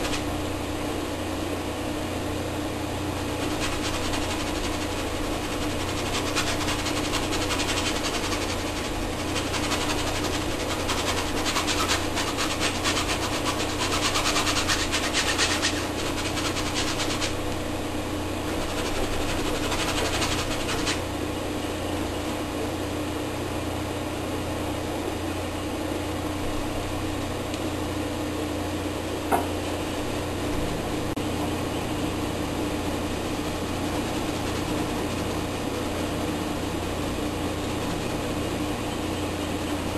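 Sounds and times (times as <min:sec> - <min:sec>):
paintbrush scrubbing canvas: 0:00.0 - 0:00.3, 0:03.2 - 0:17.5, 0:18.4 - 0:21.0
electrical hum: 0:00.0 - 0:39.9.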